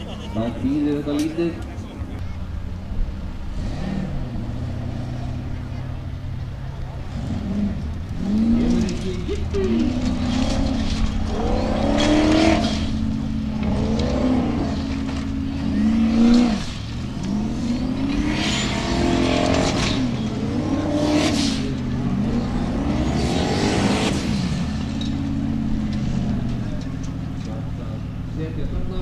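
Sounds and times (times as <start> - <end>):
buggy engine revving hard: 0.0 - 29.0
spinning tyres throwing dirt: 6.5 - 29.0.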